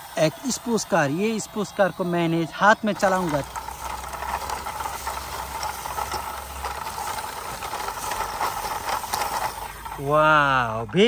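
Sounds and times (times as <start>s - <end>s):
background hiss: 0.0s - 4.2s
toy car pushed over grass: 0.0s - 10.9s.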